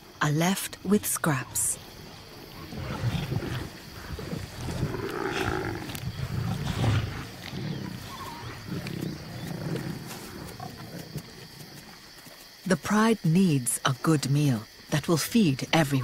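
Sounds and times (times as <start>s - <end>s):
lions growling: 2.2s - 11.5s.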